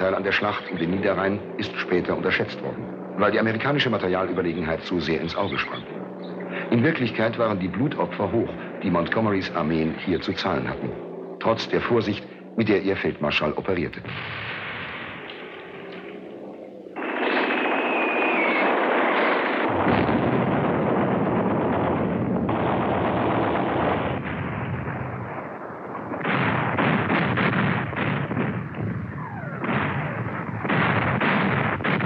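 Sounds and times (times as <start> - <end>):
rumble of heavy gunfire: 0.0 - 32.0
machine-gun fire: 17.0 - 25.4, 26.0 - 32.0
single gunshots: 17.0 - 25.4, 26.0 - 32.0.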